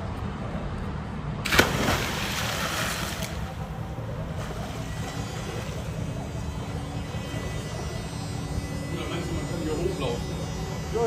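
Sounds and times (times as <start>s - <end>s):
diving splash: 1.4s - 6.2s
churning water: 1.4s - 8.0s.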